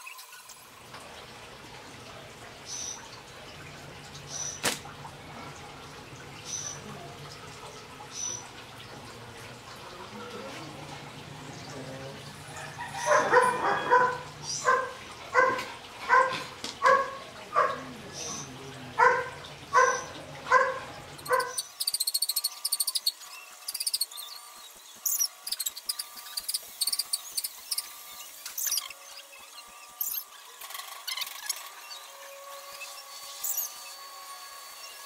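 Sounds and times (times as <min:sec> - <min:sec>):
dog barking: 0:13.0 - 0:17.9, 0:19.0 - 0:21.6
rapid high-pitched chirping: 0:21.2 - 0:30.4.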